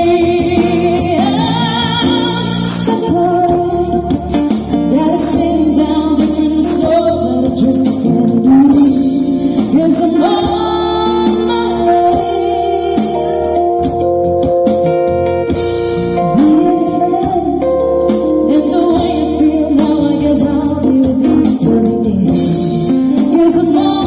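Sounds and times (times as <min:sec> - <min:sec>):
woman singing into microphone: 0:00.0 - 0:14.1, 0:16.2 - 0:24.0
held keyboard chords: 0:00.0 - 0:24.0.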